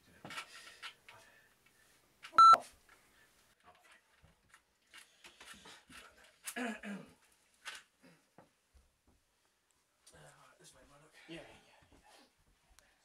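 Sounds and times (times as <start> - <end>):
short electronic beep: 2.4 - 2.6.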